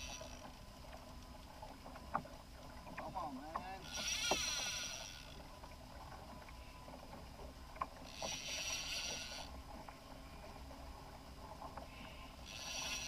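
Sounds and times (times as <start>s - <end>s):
fishing reel buzzing: 0.0s - 0.6s, 3.8s - 5.4s, 8.0s - 9.6s, 12.3s - 13.0s.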